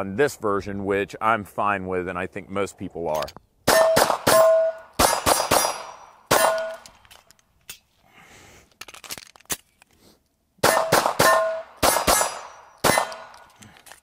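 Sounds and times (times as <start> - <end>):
pistol shots: 3.6 - 6.9, 10.6 - 13.6
steel targets ringing: 3.7 - 6.8, 10.7 - 13.1.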